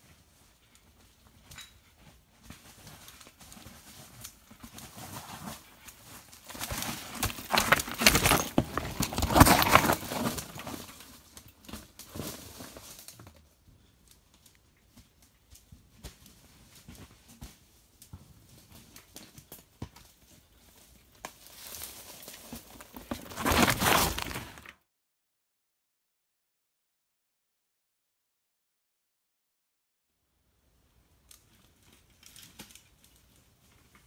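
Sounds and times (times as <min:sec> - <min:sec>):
tyres crunching over stones: 0:04.6 - 0:11.1, 0:21.4 - 0:24.7.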